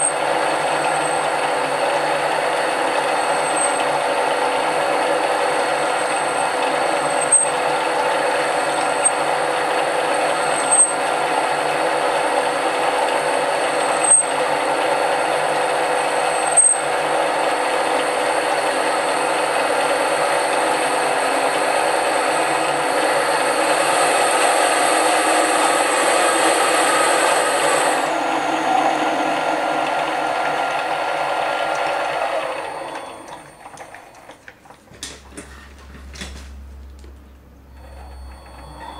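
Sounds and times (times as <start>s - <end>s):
lathe running: 0.0s - 34.7s, 35.3s - 38.9s.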